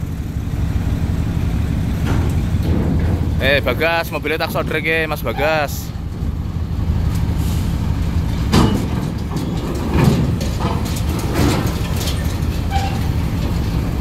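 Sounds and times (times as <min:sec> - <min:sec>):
bus diesel engine running: 0:00.0 - 0:14.0.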